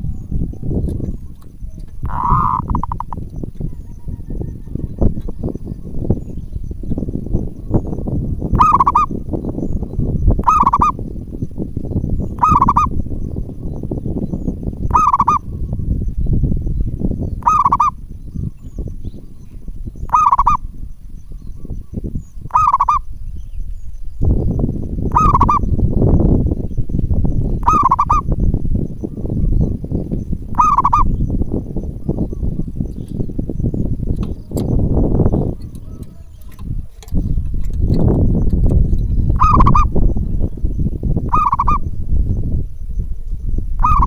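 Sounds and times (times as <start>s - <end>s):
dove cooing: 0.0s - 6.1s, 7.8s - 9.2s, 10.4s - 11.0s, 12.4s - 13.0s, 14.9s - 15.7s, 17.4s - 18.0s, 20.1s - 20.7s, 22.5s - 23.1s, 25.1s - 25.7s, 27.6s - 28.3s, 30.5s - 31.2s, 35.2s - 37.1s, 39.3s - 40.0s, 41.3s - 41.9s, 43.8s - 44.0s
low rumbling noise: 0.0s - 44.0s
wind on microphone: 0.0s - 44.0s.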